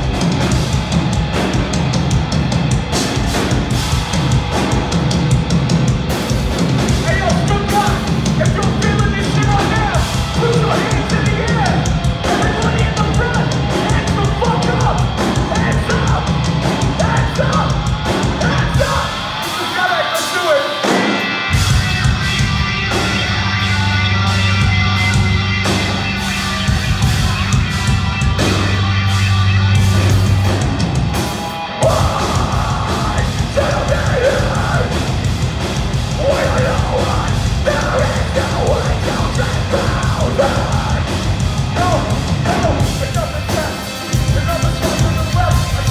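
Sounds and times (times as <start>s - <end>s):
metal band playing live: 0.0s - 45.9s
held guitar chords ringing: 17.7s - 45.9s
person singing: 31.8s - 35.1s, 36.1s - 45.9s.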